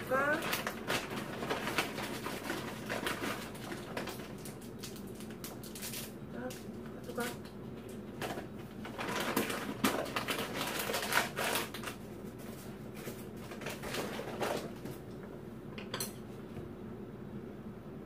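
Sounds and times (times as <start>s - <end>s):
chopsticks and dishes clinking: 15.8s - 16.3s.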